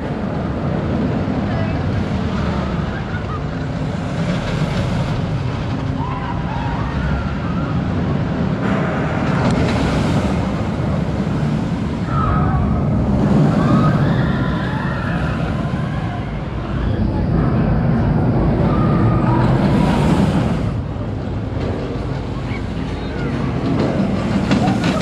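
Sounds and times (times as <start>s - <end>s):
roller coaster rumble: 0.0s - 25.0s
riders screaming: 5.9s - 8.1s, 12.0s - 17.0s, 18.5s - 20.2s.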